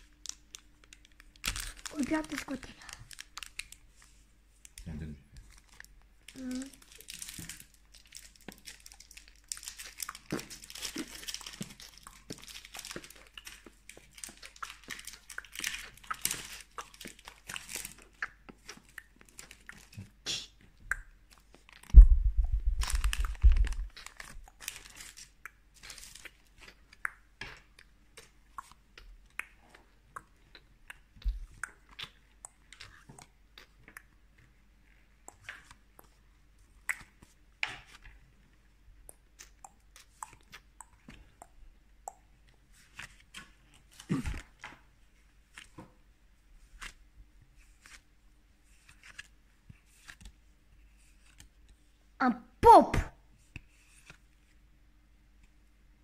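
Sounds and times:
packaging crinkling and rustling: 0.0 - 20.0, 21.3 - 28.3.

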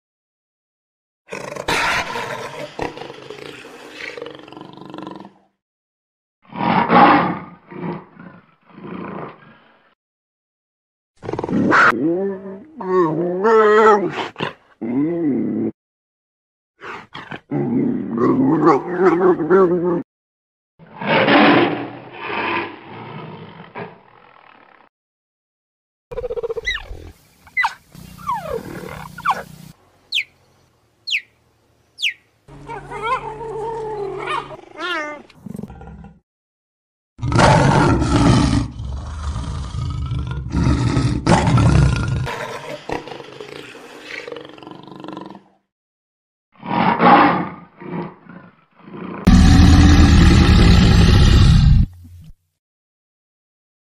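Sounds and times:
big cat roars and growls: 1.3 - 5.5, 6.5 - 10.0, 11.2 - 15.8, 16.8 - 20.0, 20.8 - 24.9, 32.5 - 36.2, 37.2 - 45.6, 46.6 - 52.0
high falling animal calls: 26.1 - 31.4, 32.0 - 35.2.

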